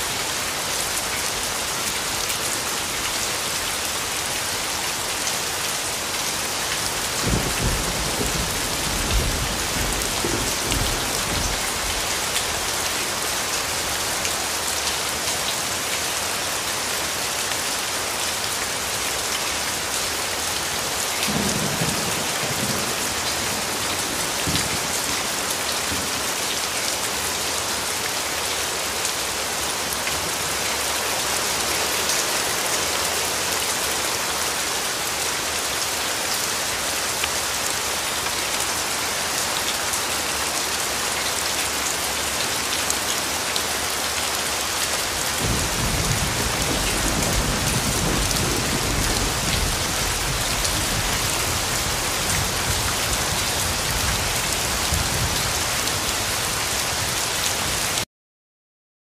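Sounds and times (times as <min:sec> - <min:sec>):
steady rain hissing: 0:00.0 - 0:58.0
low rumble of thunder: 0:07.2 - 0:12.0, 0:45.4 - 0:55.4.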